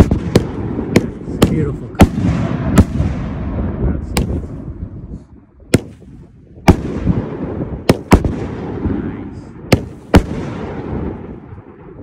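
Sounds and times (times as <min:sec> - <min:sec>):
firework bangs with echo: 0:00.0 - 0:04.7, 0:05.7 - 0:12.0.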